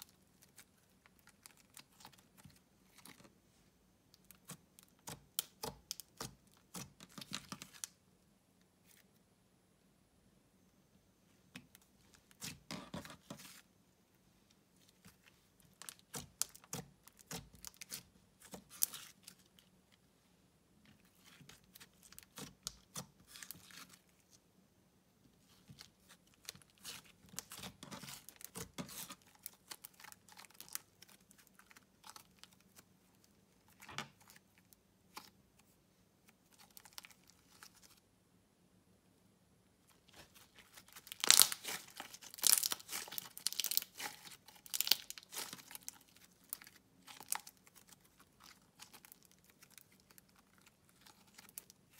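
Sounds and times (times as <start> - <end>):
slime crackling and tearing: 0.0 - 3.2, 14.9 - 19.6, 21.2 - 24.1, 25.8 - 35.4, 40.1 - 51.9.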